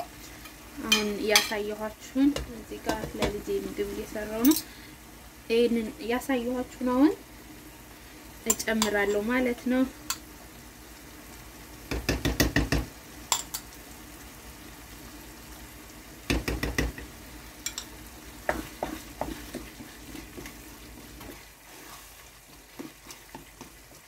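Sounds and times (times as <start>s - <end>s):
sauce sizzling in a frying pan: 0.0s - 24.0s
spoon knocking against pan: 11.9s - 13.6s, 16.3s - 19.7s.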